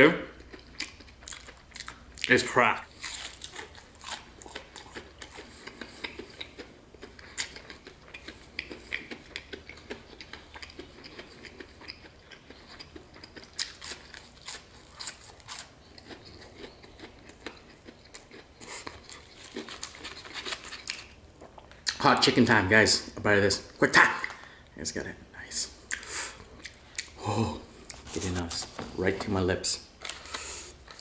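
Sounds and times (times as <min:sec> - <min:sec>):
person chewing crunchy food: 0:00.4 - 0:02.3, 0:02.9 - 0:22.0, 0:30.0 - 0:31.0.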